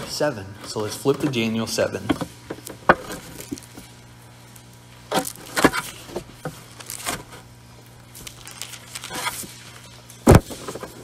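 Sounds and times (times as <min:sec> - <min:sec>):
book pages flipping: 0:04.6 - 0:11.0.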